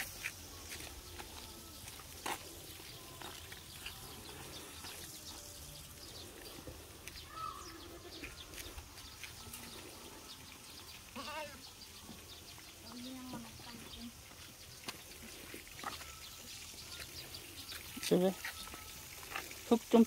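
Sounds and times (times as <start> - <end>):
faint outdoor background: 0.0 - 20.0
goat bleating: 7.3 - 8.4, 11.1 - 11.6.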